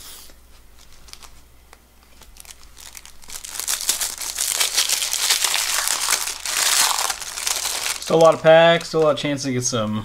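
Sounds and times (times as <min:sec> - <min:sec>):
wrapper tearing and crinkling: 0:00.8 - 0:01.4, 0:02.0 - 0:09.3.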